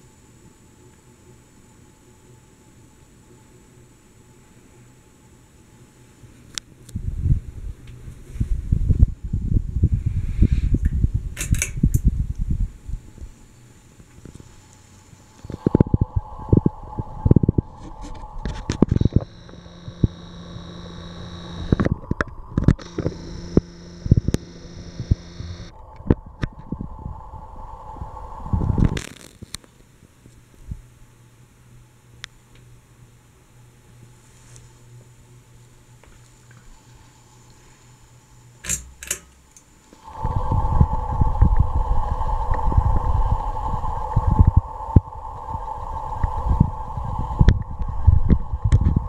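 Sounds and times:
ceiling fan humming: 0:00.0 - 0:49.0
camera zoom motor whining: 0:15.4 - 0:26.6
sharp clicks and knocks: 0:38.6 - 0:39.7.

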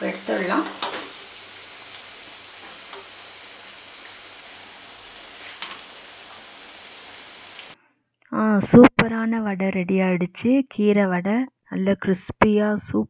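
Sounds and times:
hot oil sizzling: 0:00.0 - 0:07.8.

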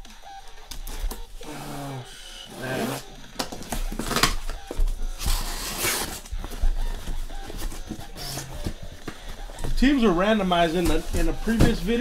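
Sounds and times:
cardboard box being cut and torn: 0:05.2 - 0:06.4.

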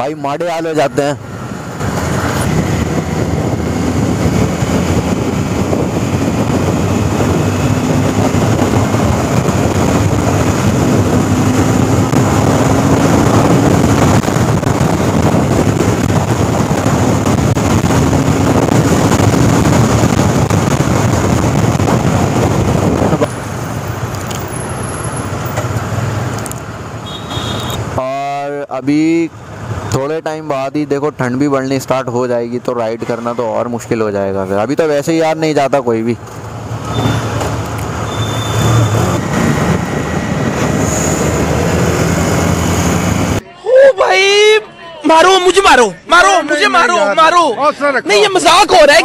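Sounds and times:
wind and road noise: 0:00.0 - 0:43.4, 0:45.1 - 0:49.0
motorcycle engine revving: 0:01.2 - 0:26.3, 0:36.2 - 0:43.4.

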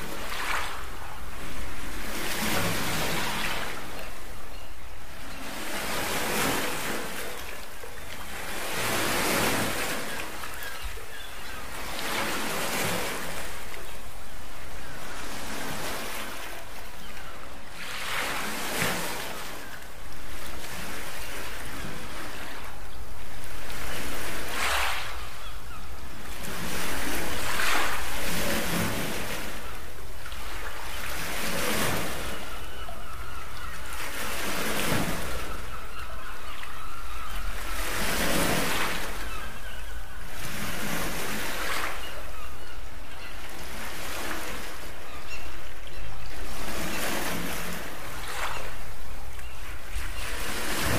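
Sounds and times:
small waves washing on beach: 0:00.0 - 0:42.4, 0:46.0 - 0:50.9.

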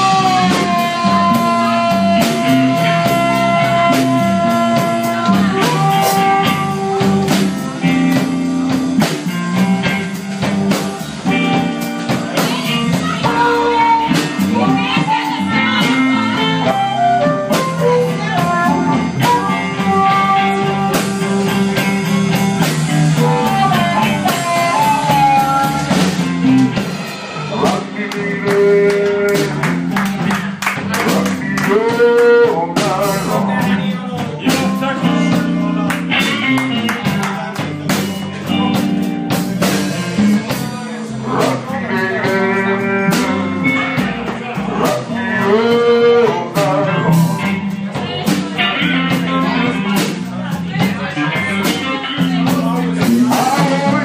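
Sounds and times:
amplified harmonica: 0:00.0 - 0:08.2, 0:12.5 - 0:26.6
blues band playing: 0:00.0 - 0:54.0.

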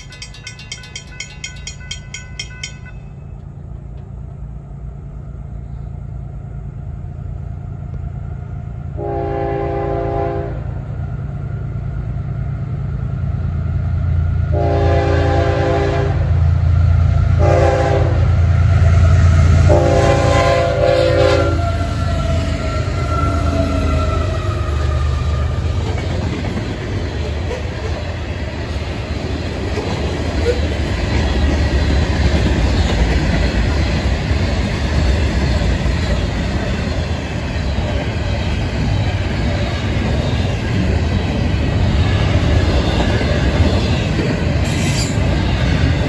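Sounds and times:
crossing bell ringing: 0:00.0 - 0:03.7
locomotive low rumble: 0:00.0 - 0:46.0
train air horn: 0:09.0 - 0:10.7, 0:14.5 - 0:16.4, 0:17.4 - 0:18.4, 0:19.0 - 0:25.6.

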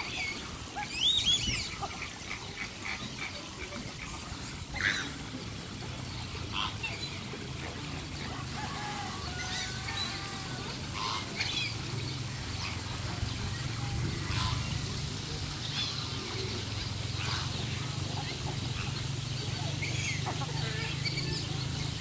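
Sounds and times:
ducks quacking: 0:00.0 - 0:22.0
geese honking: 0:06.5 - 0:06.8, 0:08.6 - 0:11.6, 0:14.2 - 0:14.8.

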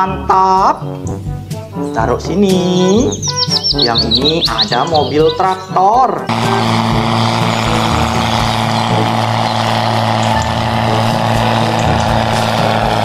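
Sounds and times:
tractor diesel engine running hard: 0:06.3 - 0:13.0.

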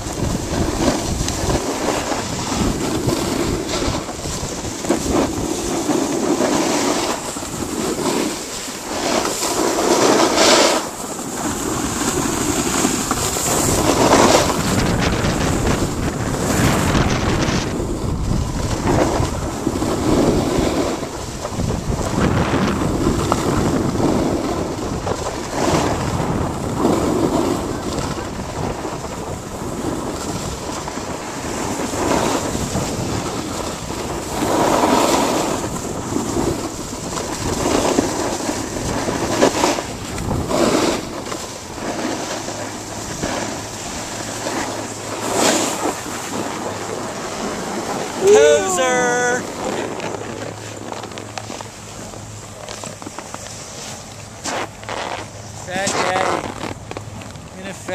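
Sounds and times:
wind buffeting microphone: 0:00.0 - 0:09.2, 0:09.8 - 0:57.9
skis scraping on packed snow: 0:00.0 - 0:57.9.

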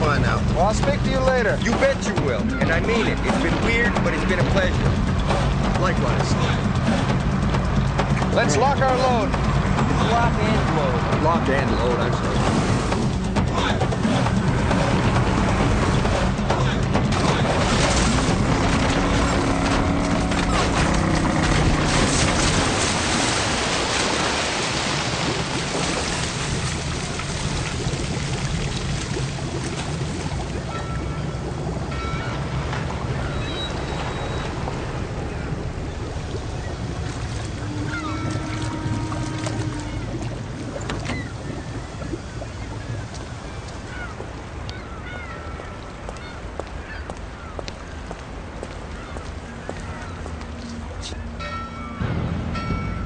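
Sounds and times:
churning water rushing: 0:00.0 - 0:53.0
car splashing into water: 0:17.0 - 0:43.7
birds squawking: 0:30.6 - 0:34.6, 0:35.2 - 0:48.2, 0:48.8 - 0:51.4.

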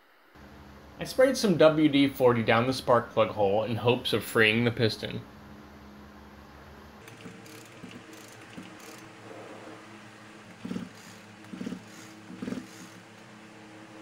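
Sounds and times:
small mechanical clicks: 0:07.0 - 0:09.2, 0:10.5 - 0:13.2
rasping mechanical noise bursts: 0:07.0 - 0:14.0.

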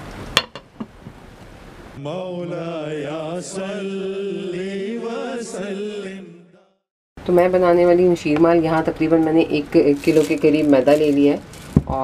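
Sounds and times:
person chanting: 0:02.0 - 0:06.5.

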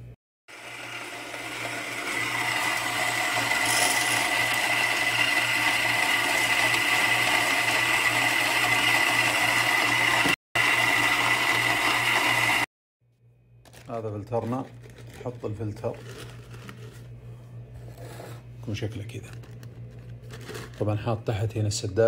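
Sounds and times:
coffee grinder grinding beans: 0:00.5 - 0:12.7, 0:13.7 - 0:17.2, 0:19.3 - 0:20.9.

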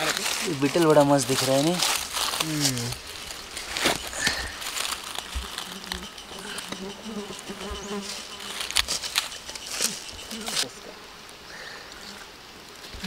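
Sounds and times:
knocks and rustles: 0:00.0 - 0:10.7
flying insect buzzing: 0:01.5 - 0:12.5.

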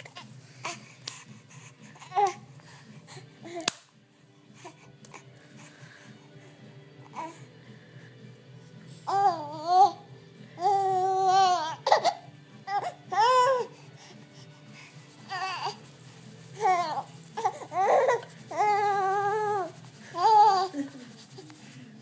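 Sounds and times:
baby cooing and squealing: 0:10.6 - 0:13.7, 0:15.3 - 0:15.8, 0:16.6 - 0:20.7.

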